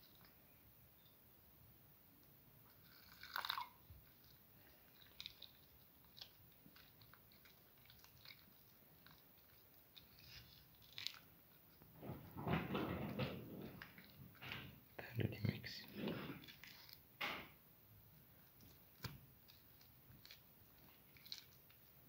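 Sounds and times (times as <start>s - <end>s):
wet squelches of hand mixing batter: 1.8s - 12.2s
water splashing into a bowl: 3.1s - 3.8s.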